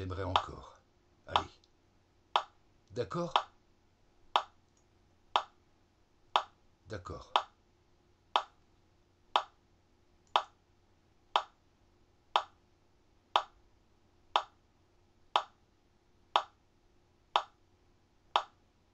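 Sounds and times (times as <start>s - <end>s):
clock ticking: 2.4s - 2.6s, 3.2s - 3.5s, 4.3s - 4.6s, 5.3s - 5.6s, 6.3s - 6.6s, 7.3s - 7.6s, 8.3s - 8.6s, 9.4s - 9.6s, 10.3s - 10.6s, 11.4s - 11.6s, 12.4s - 12.6s, 13.3s - 13.6s, 14.3s - 14.6s, 15.4s - 15.6s, 16.4s - 16.6s, 17.4s - 17.6s, 18.4s - 18.6s.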